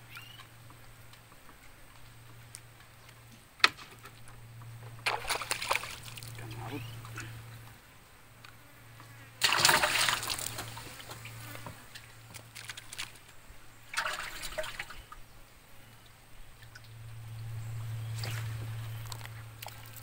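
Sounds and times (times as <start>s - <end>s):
steady low hum: 0.0s - 20.0s
water splashing against boat: 5.0s - 7.3s, 9.4s - 13.3s, 13.9s - 15.2s.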